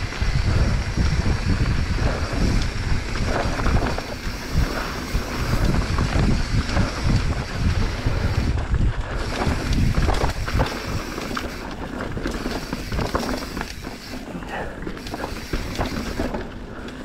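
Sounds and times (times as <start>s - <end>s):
wind buffeting microphone: 0.0s - 16.8s
bike tyres rumbling on dirt: 0.0s - 17.0s.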